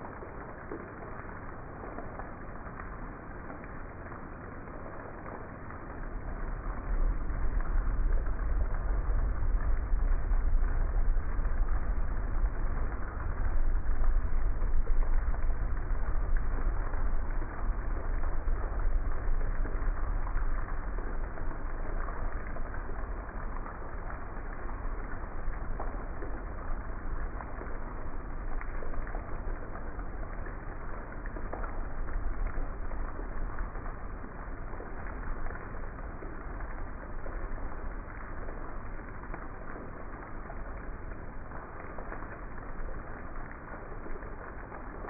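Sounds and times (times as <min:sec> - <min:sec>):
heavy rain pouring: 0:00.0 - 0:45.0
low rumble: 0:00.0 - 0:45.0.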